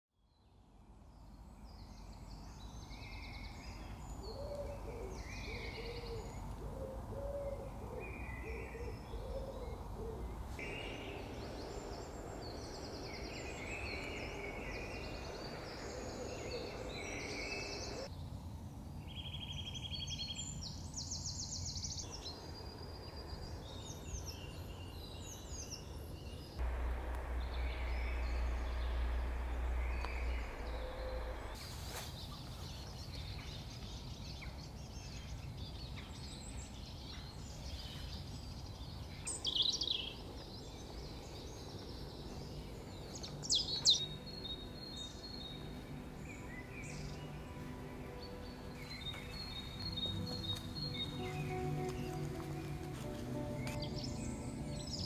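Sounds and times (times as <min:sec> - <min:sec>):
birdsong chirps and trills: 0:00.3 - 0:18.3, 0:19.0 - 0:55.0
low rumble: 0:10.3 - 0:18.1, 0:26.6 - 0:31.6
loud deep hum: 0:26.6 - 0:31.6.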